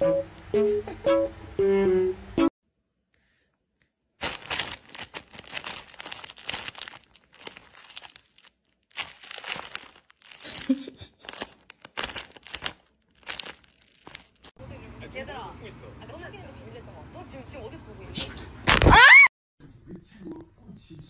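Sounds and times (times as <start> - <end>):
plastic bag crinkling: 4.2 - 14.6.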